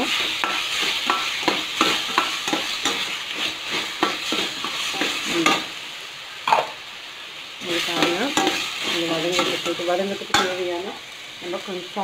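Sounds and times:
metal spoon scraping a pan: 0.0s - 5.8s, 7.6s - 11.0s
tomatoes sizzling in hot oil: 0.0s - 12.0s.

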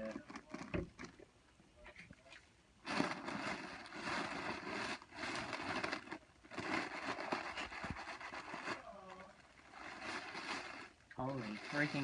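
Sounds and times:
foil balloon crinkling: 0.0s - 1.3s, 2.8s - 12.0s.

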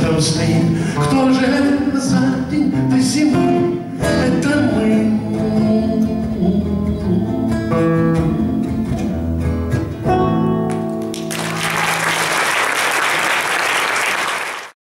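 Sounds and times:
classical guitar chords: 1.0s - 12.0s
audience applause: 11.0s - 14.8s.

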